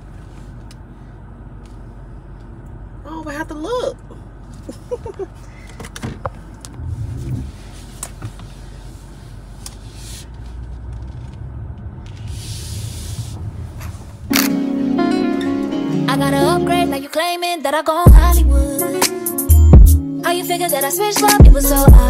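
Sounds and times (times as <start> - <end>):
car cabin rumble: 0.0 - 14.4
loud music: 14.3 - 17.1, 18.1 - 22.0.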